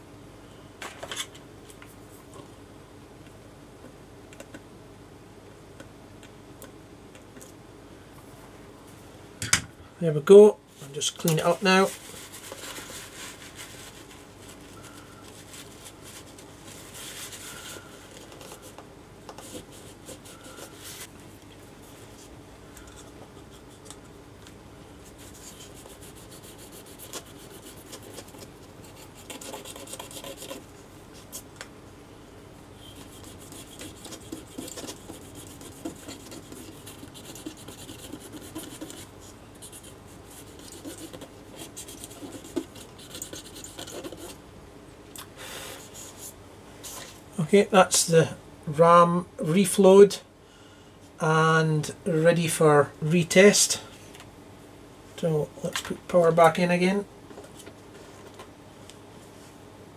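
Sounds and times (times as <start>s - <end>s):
wipe rubbing circuit board: 25.1s - 30.6s, 32.9s - 44.4s.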